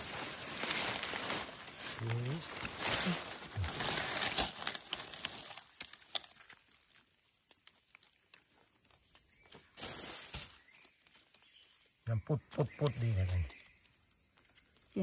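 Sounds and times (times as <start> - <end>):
rustling undergrowth and leaves: 0.0 - 11.9.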